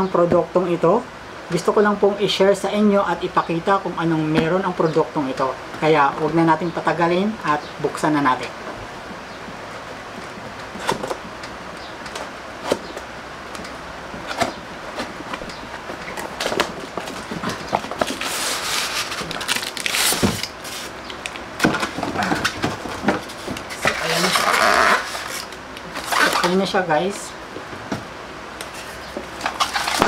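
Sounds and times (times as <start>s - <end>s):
scraping and rustling packaging: 12.0s - 26.8s, 28.6s - 30.0s.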